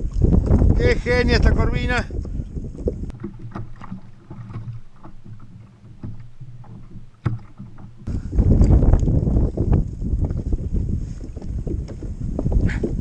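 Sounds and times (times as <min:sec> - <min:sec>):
wind on microphone: 0:00.0 - 0:13.0
knocks against kayak hull: 0:02.8 - 0:09.1.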